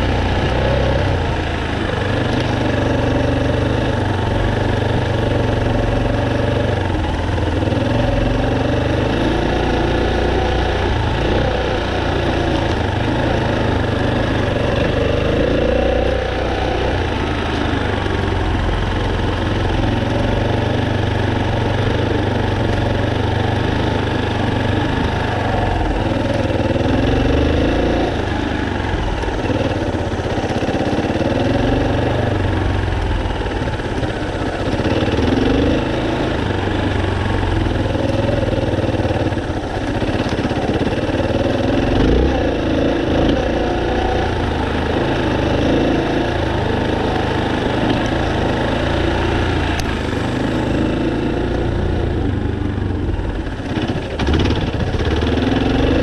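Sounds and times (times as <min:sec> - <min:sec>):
off-road motorcycle engine: 0:00.0 - 0:56.0.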